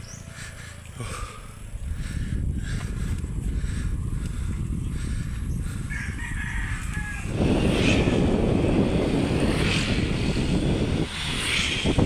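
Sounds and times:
loud rumbling noise: 0.0 - 12.0
rooster crowing: 5.9 - 7.6.

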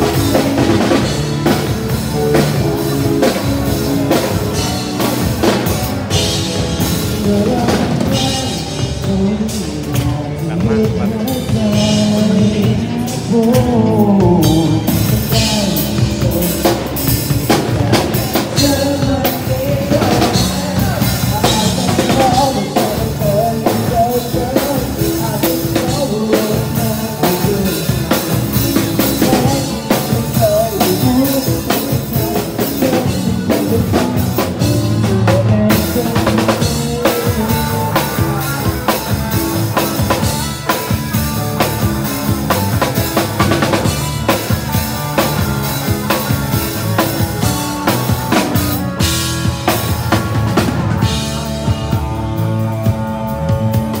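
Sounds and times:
drum kit beat: 0.0 - 54.0
person singing melody: 0.0 - 54.0.

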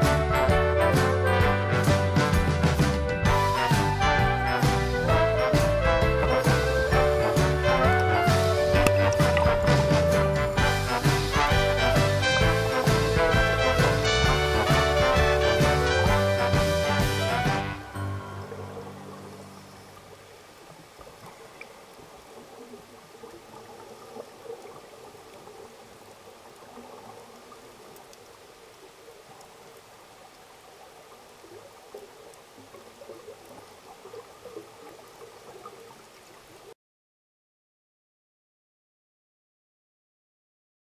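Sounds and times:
underwater bubbling and gurgling: 5.8 - 14.4, 17.5 - 36.7.

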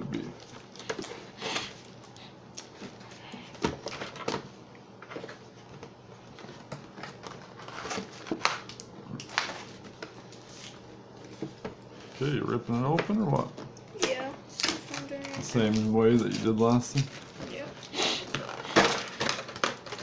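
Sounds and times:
plastic packaging crinkling: 6.3 - 11.4, 12.0 - 20.0.

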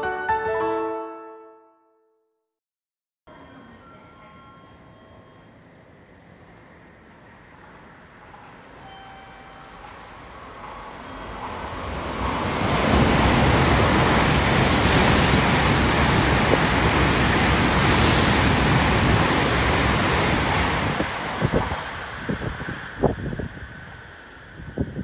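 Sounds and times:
train passing with wheel noise: 3.3 - 25.0
wind thumps on microphone: 20.4 - 23.6.

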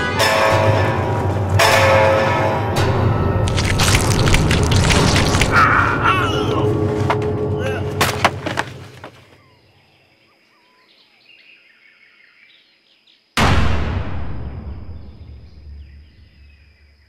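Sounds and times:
faint bird chirps: 9.4 - 13.3
booming dramatic hits: 13.4 - 16.0.

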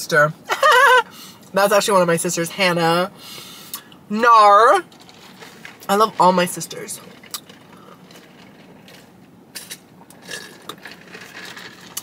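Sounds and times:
sipping through a straw: 9.6 - 12.0.

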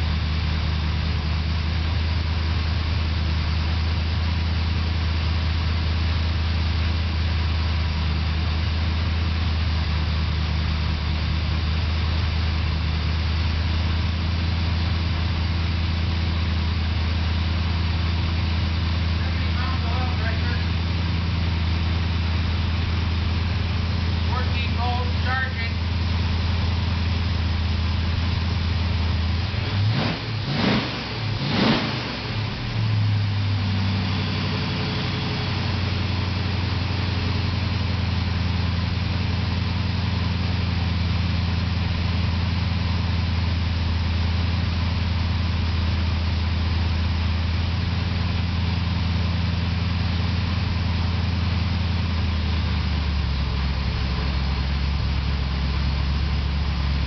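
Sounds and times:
engine idling: 0.0 - 57.0
engine throttle blips: 14.8 - 57.0.

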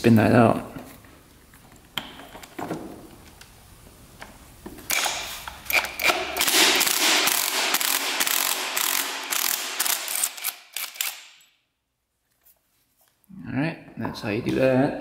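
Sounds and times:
impact wrench hammering: 4.9 - 11.4.

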